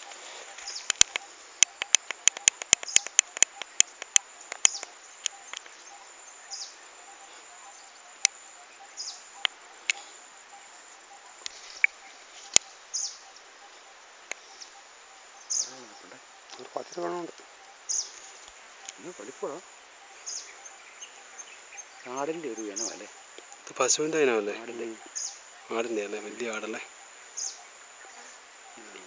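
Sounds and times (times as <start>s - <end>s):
birds chirping: 0.0s - 29.0s
insect drone: 0.0s - 29.0s
sharp clicks: 0.8s - 5.7s.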